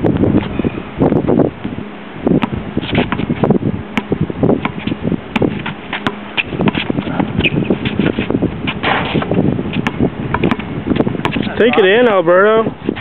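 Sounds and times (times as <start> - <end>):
wind rumbling on microphone: 0.0 - 13.0
basketball bouncing on hard court: 4.0 - 11.5.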